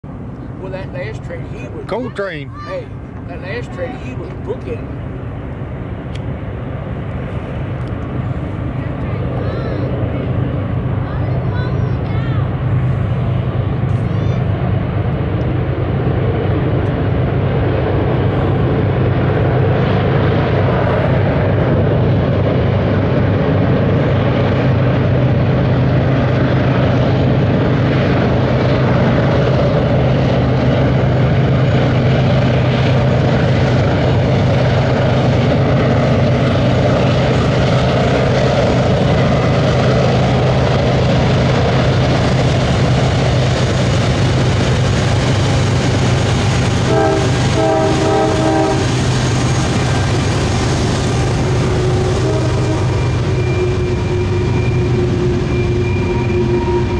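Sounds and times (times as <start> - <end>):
locomotive engines droning: 0.0 - 56.9
train cars rumbling: 0.0 - 56.9
train horn blast: 46.8 - 49.0, 51.2 - 56.9
wheel squeal: 52.7 - 56.9.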